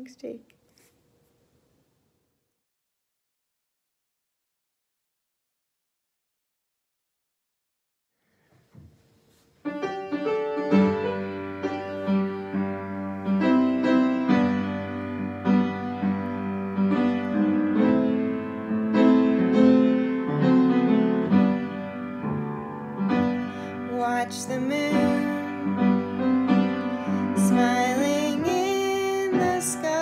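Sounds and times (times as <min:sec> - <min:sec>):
piano playing chords and melody: 0:09.6 - 0:30.0.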